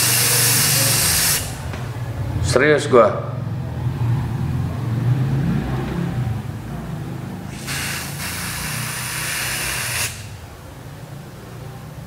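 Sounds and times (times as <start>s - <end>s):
aerosol spray hissing: 0.0s - 1.6s, 7.5s - 10.4s.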